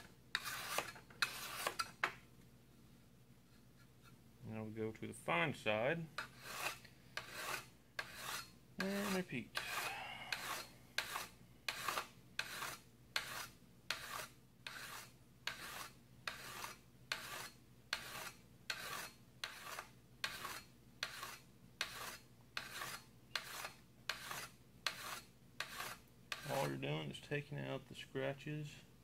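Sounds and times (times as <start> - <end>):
hone rasping on steel blade: 0.3 - 2.0, 6.2 - 26.7.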